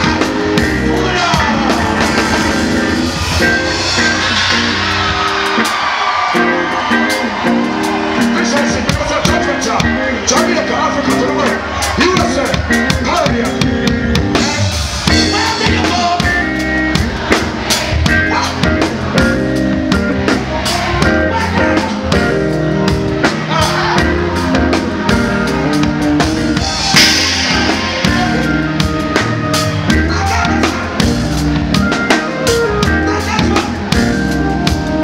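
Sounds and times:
live reggae band: 0.0 - 35.0
person singing: 8.2 - 19.0.

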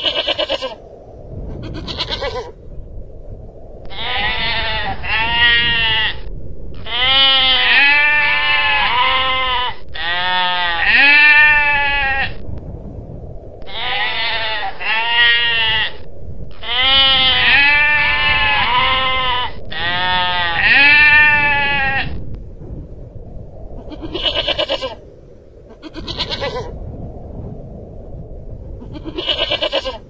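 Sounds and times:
goat-like bleats: 0.0 - 0.8, 1.6 - 2.6, 3.9 - 6.2, 6.8 - 12.4, 13.7 - 22.1, 23.9 - 25.0, 25.8 - 26.7, 28.8 - 30.0.

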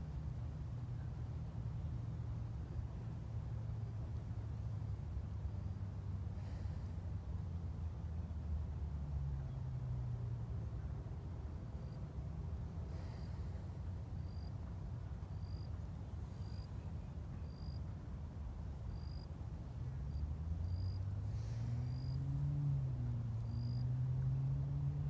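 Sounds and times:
low engine hum: 0.0 - 25.0
low outdoor rumble: 0.0 - 25.0.

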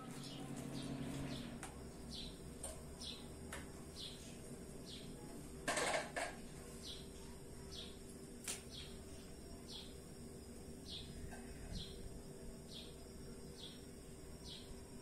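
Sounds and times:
small bird chirping: 0.0 - 2.4, 3.0 - 3.3, 8.7 - 9.0, 9.6 - 10.0, 10.8 - 12.0, 12.7 - 13.8.

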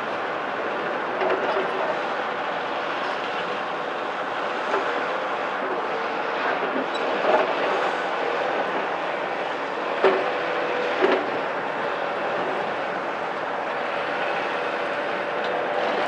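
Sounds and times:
excavator diesel engine under load: 0.0 - 16.0.

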